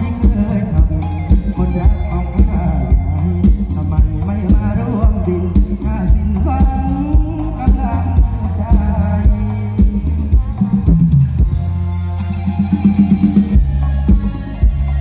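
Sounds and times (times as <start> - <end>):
person singing: 0.0 - 11.7
drum kit beat: 0.0 - 15.0
live band music: 0.0 - 15.0.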